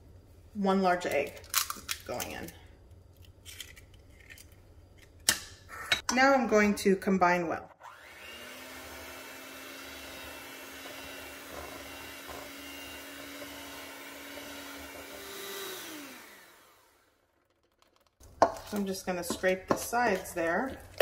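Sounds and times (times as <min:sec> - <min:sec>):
electric hand mixer running: 0:07.8 - 0:17.5.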